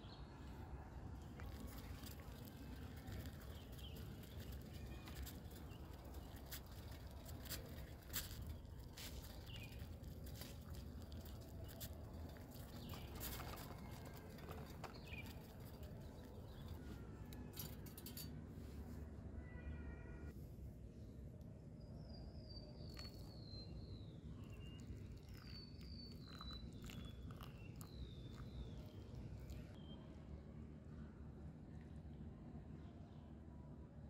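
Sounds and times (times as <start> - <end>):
bird chirps: 21.8 - 30.1.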